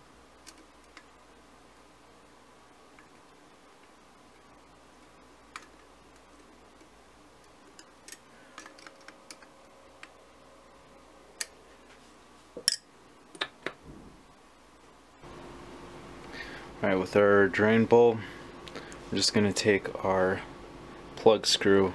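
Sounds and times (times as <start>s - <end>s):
metal parts clicking and tapping: 6.8s - 10.2s.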